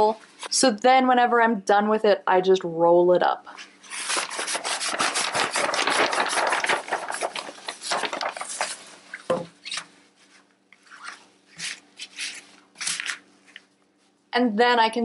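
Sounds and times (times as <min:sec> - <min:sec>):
vinyl backdrop crinkling and rustling: 0:03.6 - 0:14.2.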